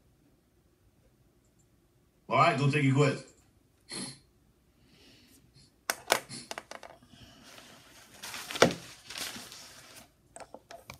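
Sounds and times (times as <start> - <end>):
rustling: 7.3 - 10.2.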